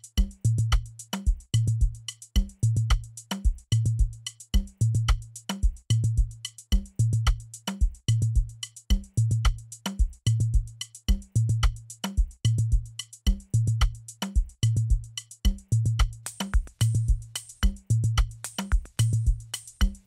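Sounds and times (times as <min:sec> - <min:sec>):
hi-hat ticks: 0:00.0 - 0:20.0
deep kick drum with bass note: 0:00.2 - 0:00.9, 0:01.6 - 0:03.0, 0:03.8 - 0:05.2, 0:05.9 - 0:07.4, 0:08.1 - 0:10.7, 0:11.4 - 0:14.0, 0:14.7 - 0:20.0
snare hits: 0:18.4 - 0:19.2.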